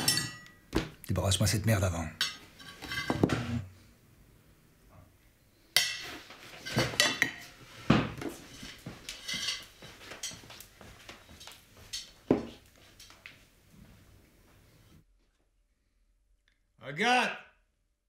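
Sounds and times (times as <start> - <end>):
plates and cutlery clinking: 0.0 - 0.6, 2.2 - 3.6, 5.8 - 13.3.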